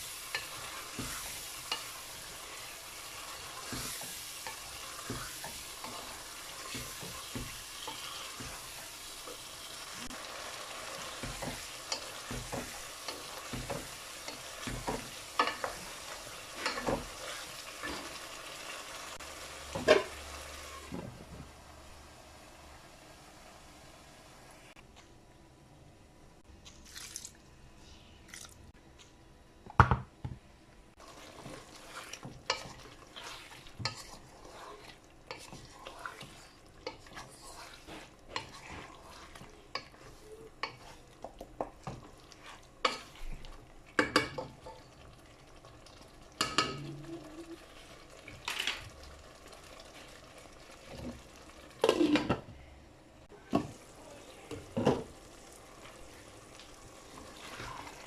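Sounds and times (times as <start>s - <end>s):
wooden spatula knocking and scraping pan: 0.2s - 2.7s, 3.3s - 9.4s, 11.0s - 18.2s, 31.2s - 44.8s.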